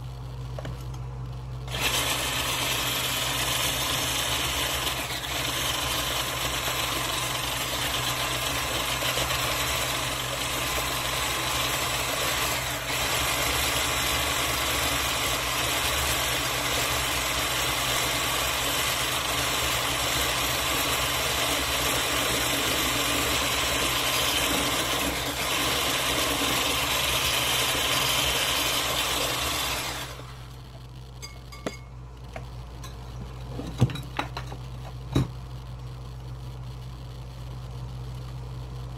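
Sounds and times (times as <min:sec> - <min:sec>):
electric mixer running: 0:01.7 - 0:30.8.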